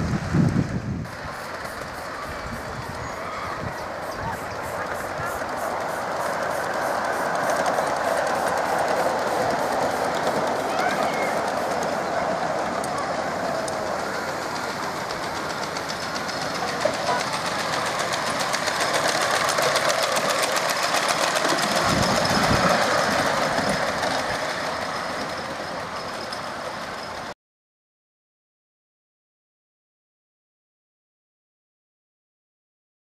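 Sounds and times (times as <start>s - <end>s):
miniature train wheels clattering: 1.0s - 27.3s.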